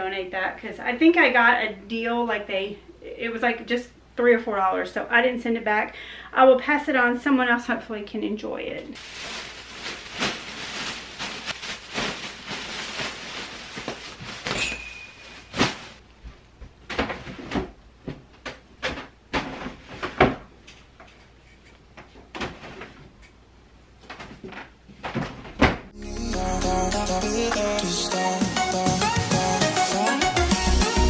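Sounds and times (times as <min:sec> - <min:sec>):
plastic bag crinkling: 0:09.0 - 0:16.0.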